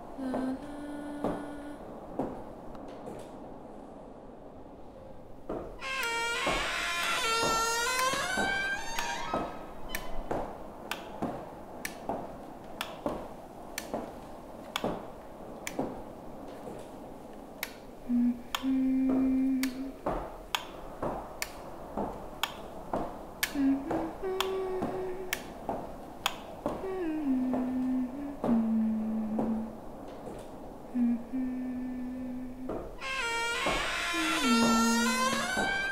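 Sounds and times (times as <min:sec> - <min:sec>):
held low notes: 0:18.0 - 0:20.1, 0:23.3 - 0:35.9.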